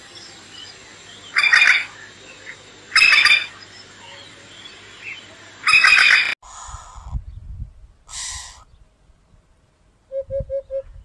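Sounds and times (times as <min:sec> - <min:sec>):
lapwing shrill chattering calls: 0:01.3 - 0:01.9, 0:05.7 - 0:07.2.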